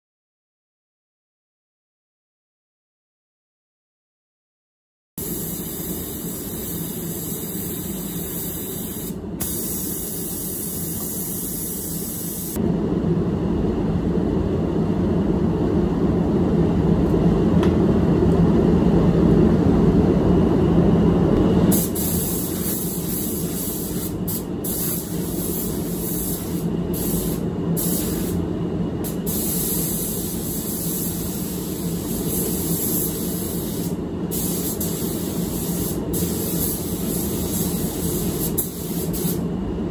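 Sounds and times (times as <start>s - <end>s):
paint spray gun hissing: 5.2s - 12.6s, 21.7s - 28.4s, 29.1s - 39.4s.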